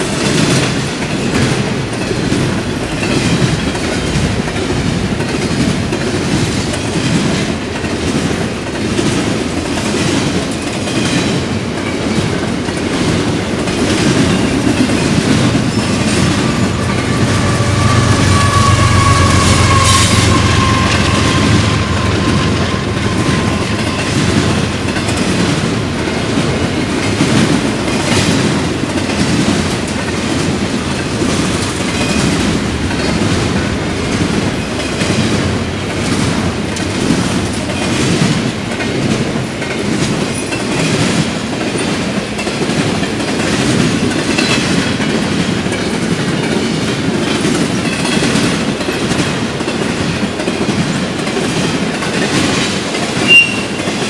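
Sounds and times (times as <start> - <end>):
train wheels clickety-clack: 0.0 - 54.0
thin squeal: 15.8 - 24.4, 53.3 - 53.8.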